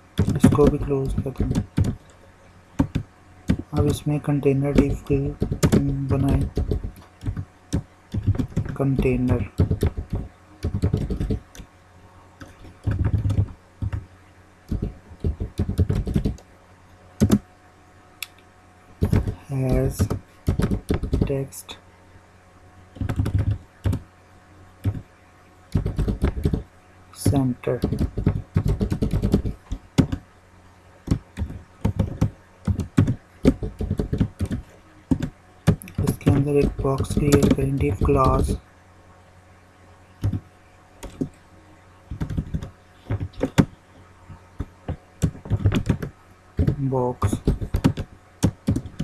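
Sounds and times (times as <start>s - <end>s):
computer keyboard typing: 0.2s - 2.1s, 2.8s - 11.7s, 12.4s - 14.0s, 14.7s - 16.4s, 17.2s - 17.4s, 19.0s - 21.5s, 23.0s - 24.0s, 24.8s - 25.1s, 25.7s - 26.6s, 27.2s - 30.2s, 31.0s - 38.6s, 40.2s - 40.4s, 41.0s - 41.3s, 42.1s - 43.7s, 44.6s - 49.0s.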